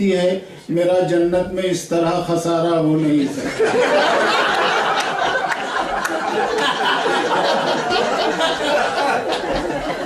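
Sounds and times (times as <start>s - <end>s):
audience laughing: 3.2s - 10.0s.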